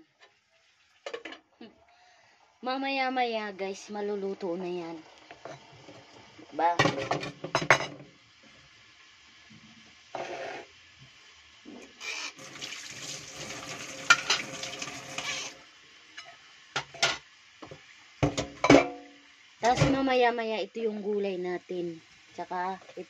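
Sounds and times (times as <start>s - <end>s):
dishes and utensils clattering: 14.0s - 14.5s, 18.2s - 19.0s.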